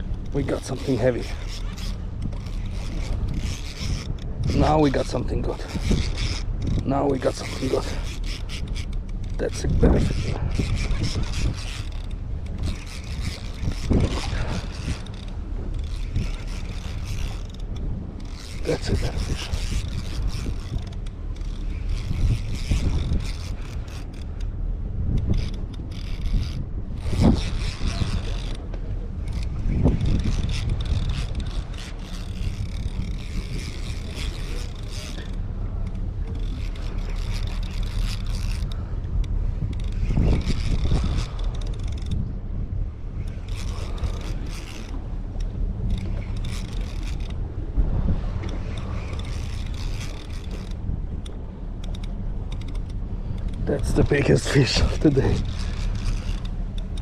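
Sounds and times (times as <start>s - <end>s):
fishing reel cranking: 0.0s - 47.6s, 48.2s - 57.0s
wind rumble on microphone: 0.0s - 57.0s
faint ticks: 25.1s - 42.2s, 43.2s - 47.4s, 48.4s - 57.0s.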